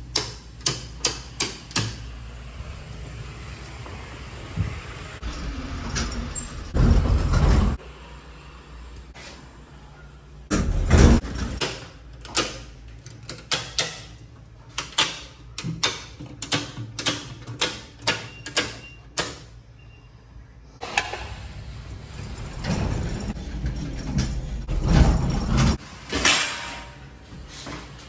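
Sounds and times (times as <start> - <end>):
circuit breakers clicking: 0.0 - 2.1, 11.2 - 19.6.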